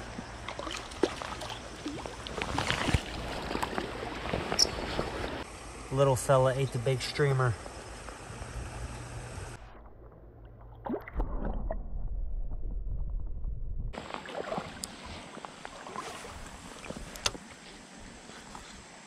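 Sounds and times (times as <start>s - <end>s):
water sloshing: 0.0s - 5.5s, 14.0s - 17.6s
low rumble: 8.2s - 14.0s.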